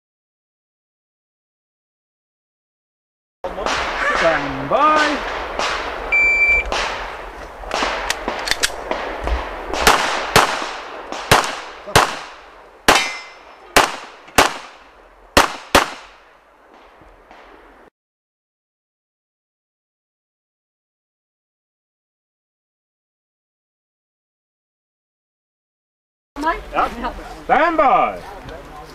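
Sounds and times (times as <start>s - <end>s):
pistol shots: 3.6s - 16.2s
shot timer beep: 6.1s - 6.7s
steel target ringing: 12.9s - 13.6s.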